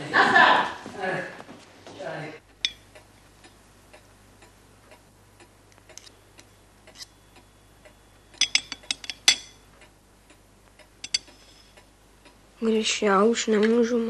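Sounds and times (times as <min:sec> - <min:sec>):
faint even ticking: 0:02.4 - 0:12.6
knife and fork scraping plate: 0:06.9 - 0:07.2.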